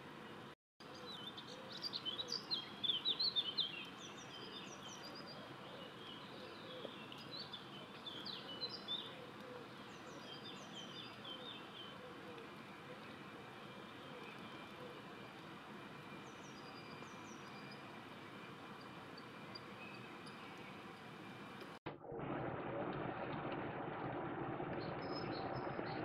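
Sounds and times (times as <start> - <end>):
songbird twittering: 0.8 - 15.4, 16.0 - 21.4.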